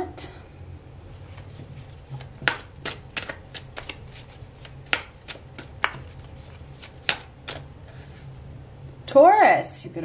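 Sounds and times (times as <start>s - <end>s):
cards being shuffled: 1.2s - 8.4s.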